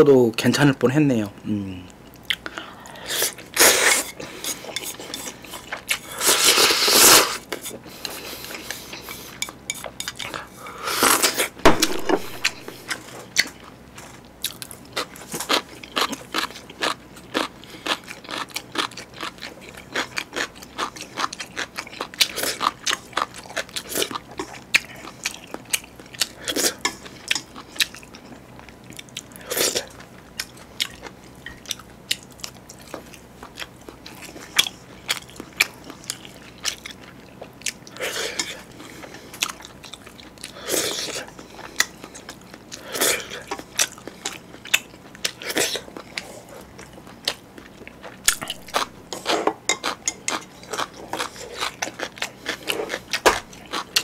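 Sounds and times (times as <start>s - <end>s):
wet chewing with mouth clicks: 1.9s - 54.0s
person slurping noodles: 6.1s - 7.4s.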